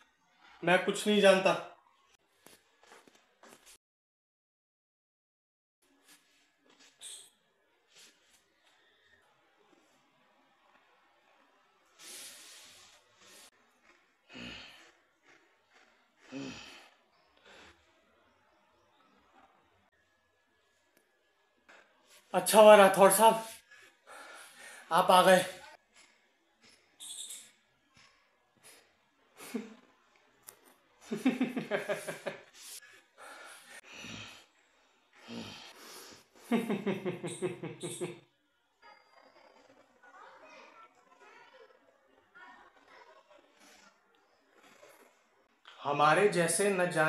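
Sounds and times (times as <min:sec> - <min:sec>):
man laughing: 0:31.2 - 0:32.3, 0:36.5 - 0:38.2.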